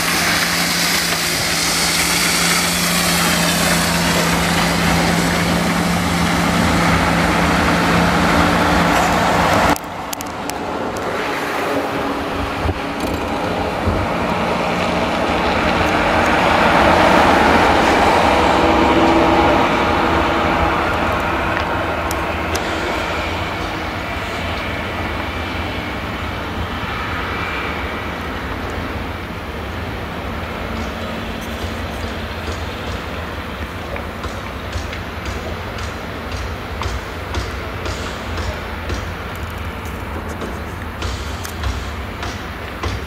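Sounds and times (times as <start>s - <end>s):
different engine noise: 0.0s - 43.0s
lorry diesel engines droning: 0.0s - 43.0s.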